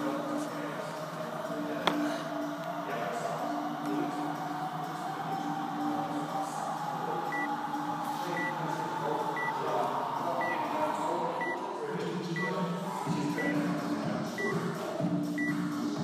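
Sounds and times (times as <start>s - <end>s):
timer countdown beeps: 7.3s - 7.5s, 13.3s - 13.6s, 14.4s - 14.6s, 15.3s - 15.6s.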